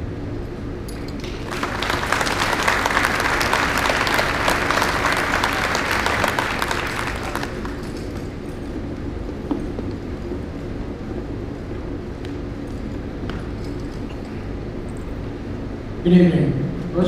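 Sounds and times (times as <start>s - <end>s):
crowd applauding: 1.2s - 8.4s.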